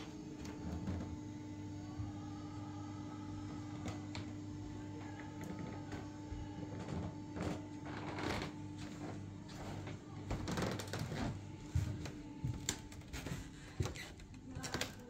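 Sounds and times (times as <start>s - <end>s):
footsteps on wooden floor: 0.0s - 1.2s, 5.4s - 15.0s
low room hum: 0.0s - 15.0s.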